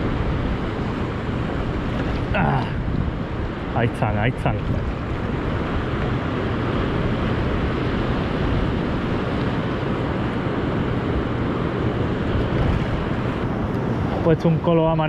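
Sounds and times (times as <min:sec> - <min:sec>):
sea surf breaking on shore: 0:00.0 - 0:15.0
wind buffeting microphone: 0:00.0 - 0:15.0.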